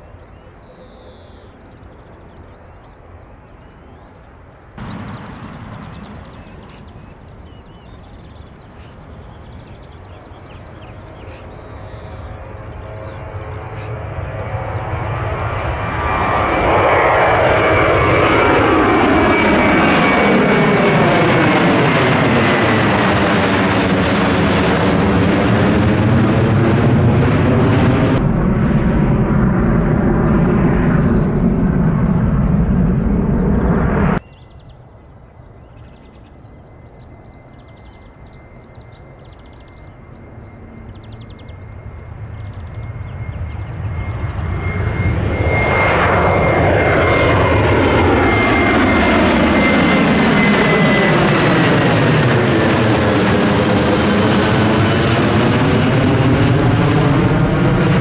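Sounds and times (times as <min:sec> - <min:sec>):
bird chirps: 0:00.0 - 0:16.4, 0:28.2 - 0:49.8
jet airliner taking off: 0:01.4 - 0:34.2, 0:34.9 - 0:58.0.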